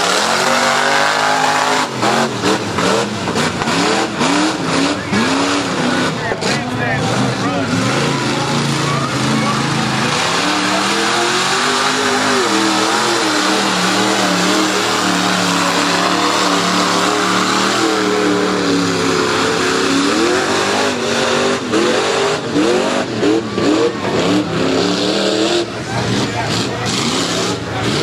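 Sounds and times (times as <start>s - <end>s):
jeep engine revving: 0.0s - 28.0s
vehicle ploughing through mud: 0.0s - 28.0s.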